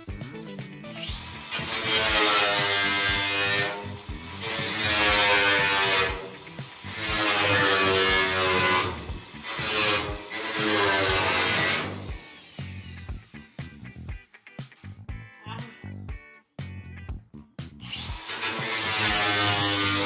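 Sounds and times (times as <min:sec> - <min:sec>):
angle grinder cutting steel: 0:00.9 - 0:14.4, 0:17.8 - 0:20.0.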